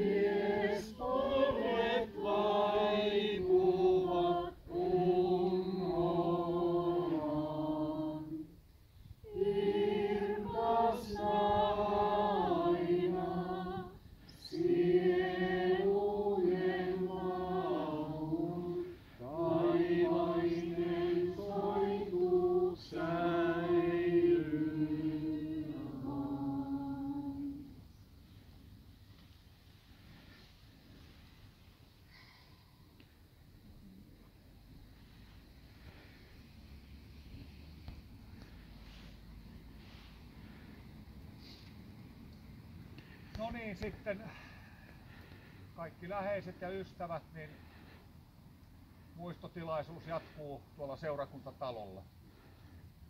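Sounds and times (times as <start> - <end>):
group singing a hymn unaccompanied: 0.0 - 27.8.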